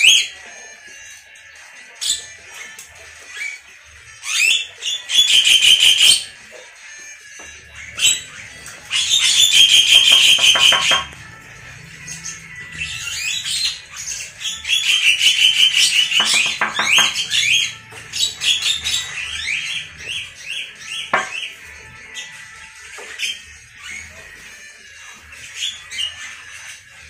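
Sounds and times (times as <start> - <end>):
songbirds chattering: 7.6 - 24.5.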